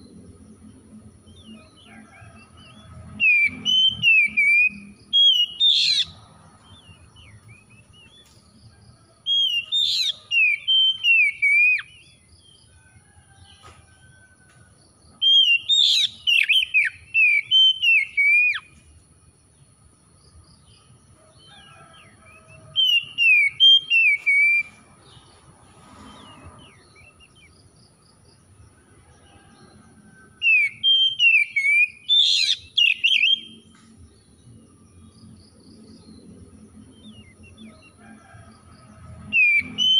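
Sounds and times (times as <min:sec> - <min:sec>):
bird singing whistled phrases: 0:03.3 - 0:06.1, 0:09.4 - 0:12.0, 0:15.3 - 0:18.7, 0:30.5 - 0:33.6.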